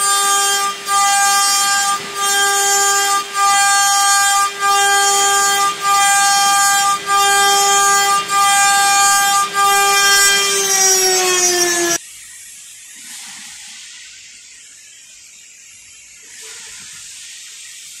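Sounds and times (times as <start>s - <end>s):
engraving machine spindle whining: 0.0s - 12.0s.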